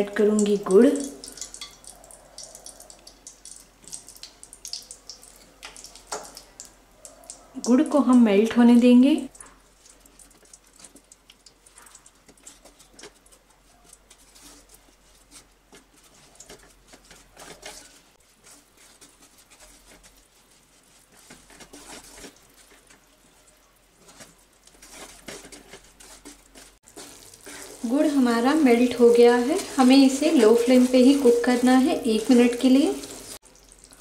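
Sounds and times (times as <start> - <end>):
sugar crackling in hot fat: 0.0 - 34.0
wooden spatula scraping pan: 11.7 - 33.4.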